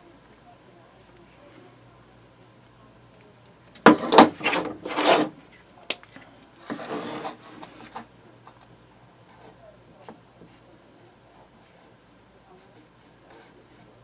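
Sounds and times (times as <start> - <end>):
scraping and rubbing on a table: 3.9 - 5.6, 6.6 - 8.1.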